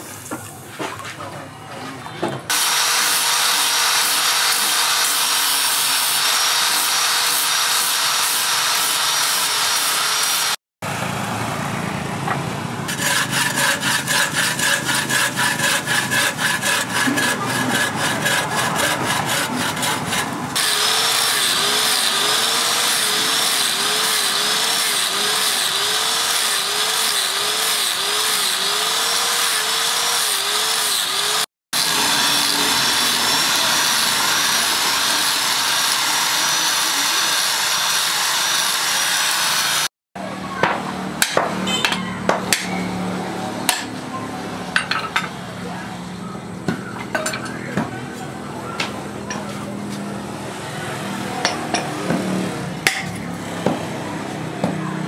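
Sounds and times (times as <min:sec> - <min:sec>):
angle grinder sanding metal: 0:02.5 - 0:10.6, 0:12.9 - 0:39.9.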